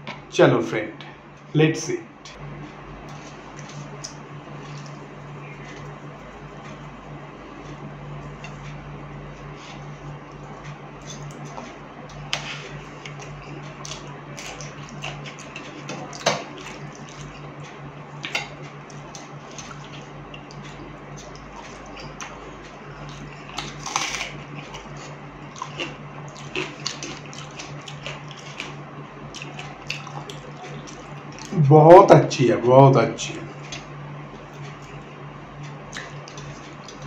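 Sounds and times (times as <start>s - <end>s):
low hum: 0.9s - 37.0s
chewing and lip smacks: 3.1s - 8.8s, 9.4s - 31.6s, 35.9s - 37.0s.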